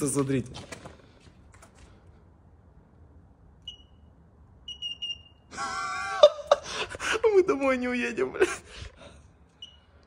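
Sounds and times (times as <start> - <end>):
fingerprint reader beeping: 3.6 - 5.5, 9.6 - 9.9
man crying out: 5.5 - 8.7.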